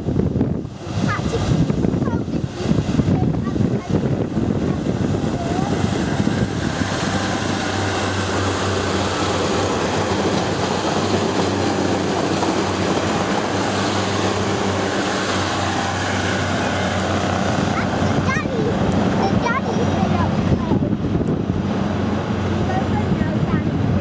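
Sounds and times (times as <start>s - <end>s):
diesel train engine drone: 0.0s - 24.0s
train wheels on rails: 5.7s - 20.2s.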